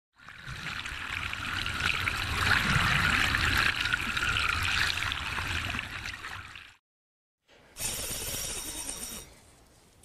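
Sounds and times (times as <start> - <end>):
water splashing and trickling: 0.2 - 6.8.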